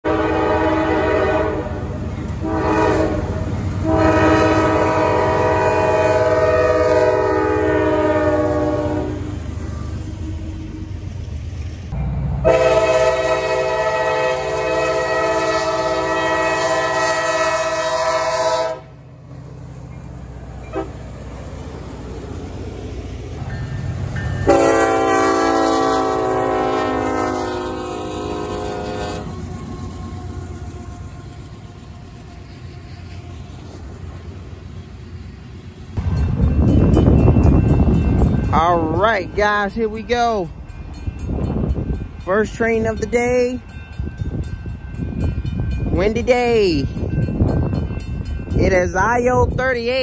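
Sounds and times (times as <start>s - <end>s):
locomotive horn blasts: 0.0s - 10.5s, 12.4s - 19.0s, 20.6s - 21.0s, 24.4s - 29.7s
low rumble of passing train: 0.0s - 50.0s.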